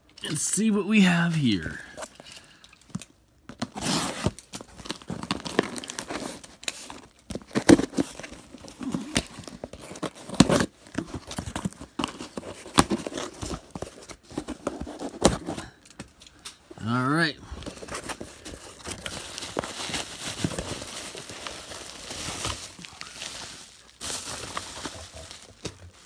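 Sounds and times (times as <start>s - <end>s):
cardboard scraping and crinkling: 3.5s - 15.8s, 17.4s - 26.0s
packing tape ripping: 3.6s - 16.5s.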